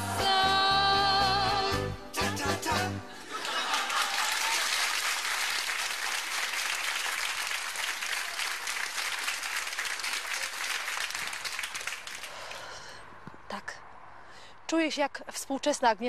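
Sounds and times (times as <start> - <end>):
audience applauding: 3.2 - 12.5.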